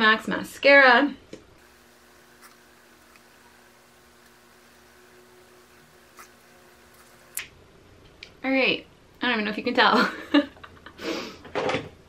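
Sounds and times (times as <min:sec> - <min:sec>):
faint hum and hiss: 0:00.0 - 0:12.0.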